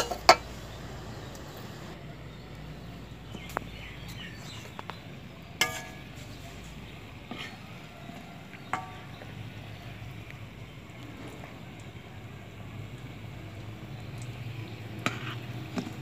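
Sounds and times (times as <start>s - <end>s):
metal utensil clinking against pan: 0.0s - 0.5s, 5.6s - 6.4s, 8.6s - 9.3s
food sizzling in hot oil: 13.0s - 16.0s.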